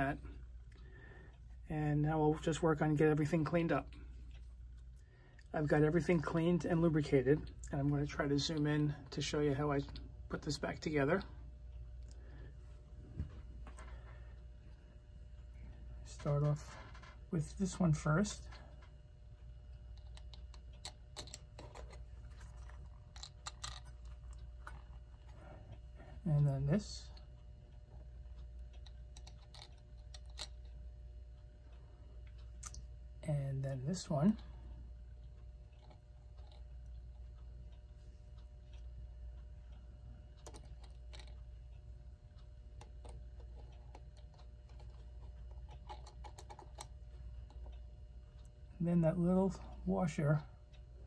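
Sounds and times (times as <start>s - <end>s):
low steady hum: 0.0s - 51.0s
clock parts clicking: 17.7s - 25.4s, 26.6s - 30.8s, 39.6s - 48.5s
small metal parts clicking: 20.0s - 24.9s, 28.7s - 30.7s.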